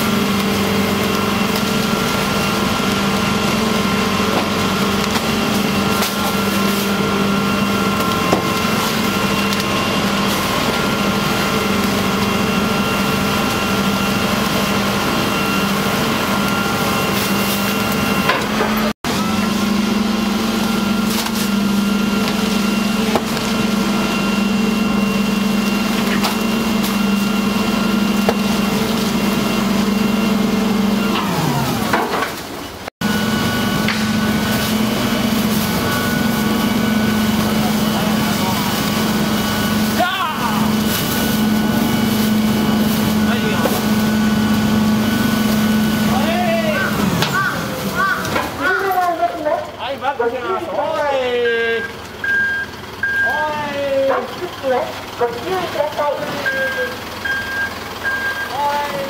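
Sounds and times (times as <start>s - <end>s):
waste knocking and crunching: 0.0s - 12.4s, 20.6s - 23.7s, 33.7s - 45.7s
garbage truck hydraulic drone: 0.0s - 59.0s.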